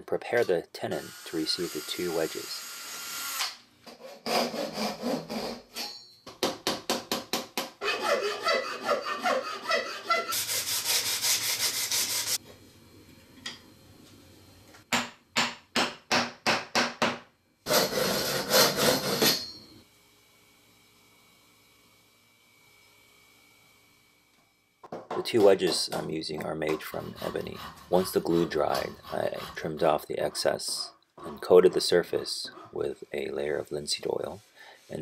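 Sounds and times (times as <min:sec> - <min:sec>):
hand saw cutting wood: 0:00.4 - 0:05.9, 0:07.8 - 0:12.4, 0:17.7 - 0:19.4, 0:25.4 - 0:35.0
sandpaper rubbing wood: 0:07.8 - 0:12.4, 0:17.7 - 0:19.2, 0:26.8 - 0:30.8.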